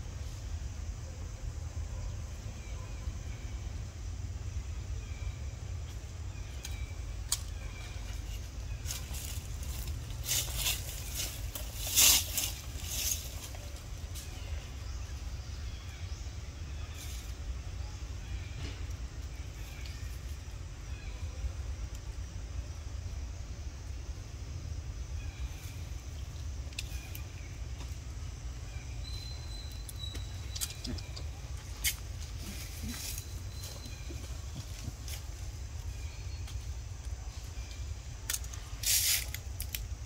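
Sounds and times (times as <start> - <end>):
crackling rustling sounds: 6.6 - 14.4, 29.7 - 40.0.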